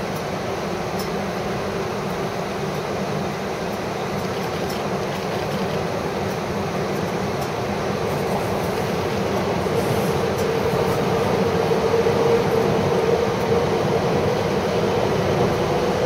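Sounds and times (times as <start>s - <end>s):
train rushing past: 3.8s - 16.0s.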